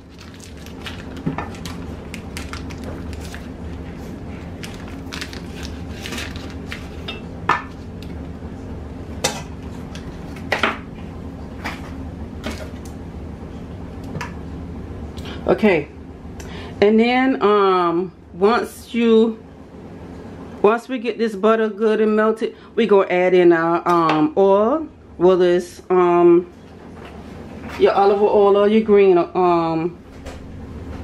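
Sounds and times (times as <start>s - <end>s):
low hum: 0.0s - 20.7s.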